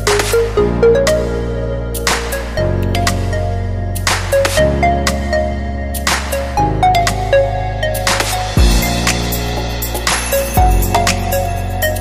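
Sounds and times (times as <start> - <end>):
held bass line: 0.0 - 12.0
drum beat: 8.6 - 11.3.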